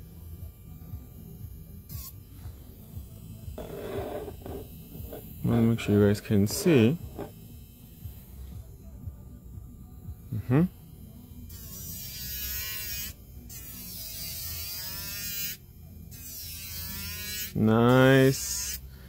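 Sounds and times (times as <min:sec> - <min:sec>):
electric nail drill whining: 0:03.1 - 0:05.6, 0:06.4 - 0:08.4.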